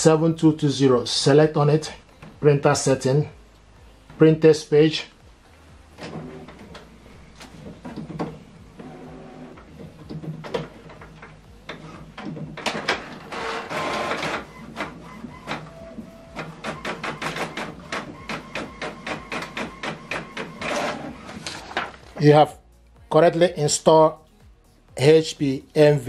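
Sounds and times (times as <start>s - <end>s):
printer evenly spaced strokes: 6.0s - 8.1s, 8.7s - 9.7s, 11.7s - 22.0s
printer whirring: 6.0s - 22.1s
printer clicks: 10.1s - 22.0s.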